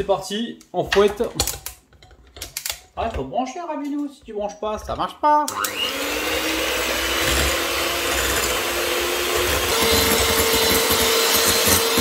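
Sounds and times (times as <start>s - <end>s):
electric hand mixer whining: 5.5s - 12.0s.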